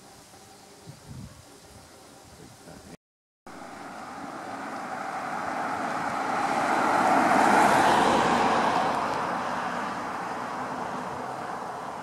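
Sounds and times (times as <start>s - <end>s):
car driving past: 3.5s - 12.0s.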